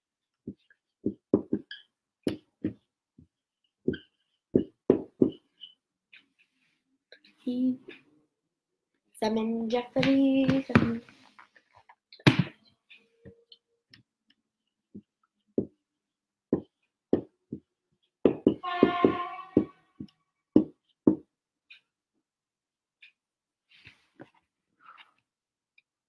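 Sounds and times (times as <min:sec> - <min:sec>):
marker tapping on whiteboard: 0:00.4 - 0:05.5, 0:16.5 - 0:21.3
marker squeak: 0:18.6 - 0:19.8.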